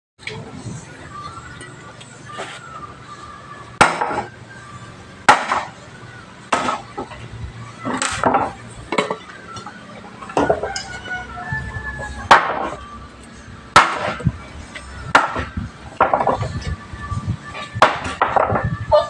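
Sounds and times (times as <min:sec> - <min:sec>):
axe chopping wood: 0:03.8 - 0:04.3, 0:05.3 - 0:05.7, 0:06.5 - 0:06.8, 0:12.3 - 0:12.7, 0:13.7 - 0:14.3, 0:15.2 - 0:16.3, 0:17.8 - 0:18.6.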